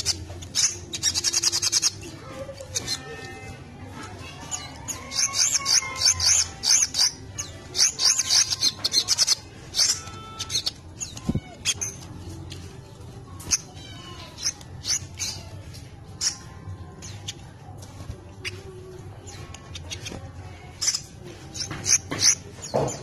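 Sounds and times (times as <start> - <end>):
sunbird high chirps and twitters: 0.0 - 3.5, 4.4 - 12.1, 13.4 - 17.4.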